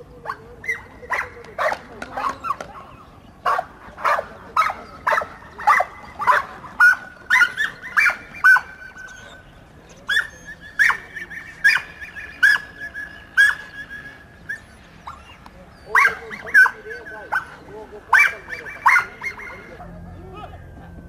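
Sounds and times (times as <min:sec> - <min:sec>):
dogs barking and yelping: 0:00.0 - 0:20.0
high steady tone: 0:18.4 - 0:21.0.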